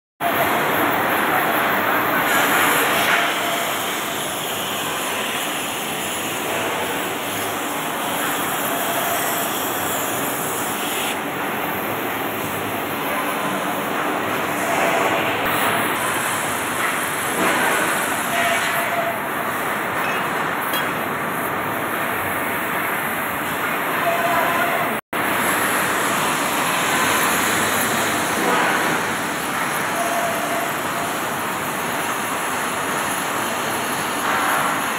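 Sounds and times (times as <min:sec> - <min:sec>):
cutting torch hissing: 0:00.9 - 0:12.8.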